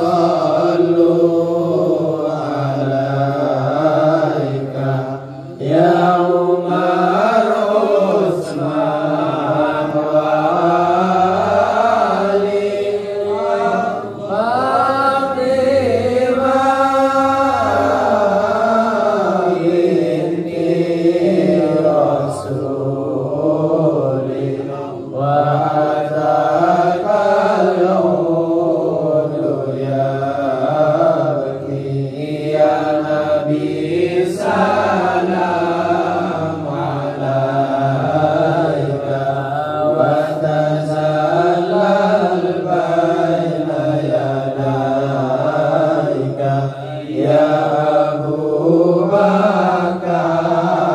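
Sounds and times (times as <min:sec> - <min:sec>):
amplified lead voice: 0:00.0 - 0:29.6
men chanting devotional song: 0:00.0 - 0:50.9.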